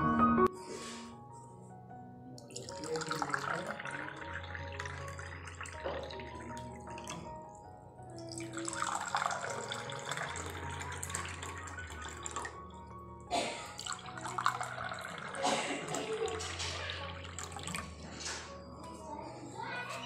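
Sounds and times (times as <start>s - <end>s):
soft background music: 0.0s - 20.0s
water pouring into glass: 2.4s - 7.3s, 8.2s - 18.3s.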